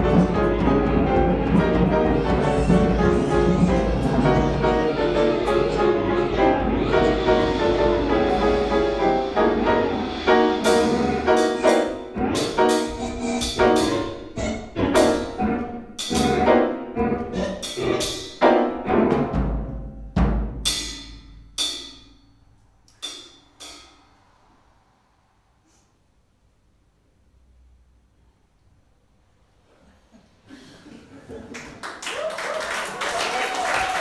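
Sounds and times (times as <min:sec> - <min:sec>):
piano notes: 0:00.0 - 0:22.0
mallet strokes on cymbals and drums: 0:23.0 - 0:26.0.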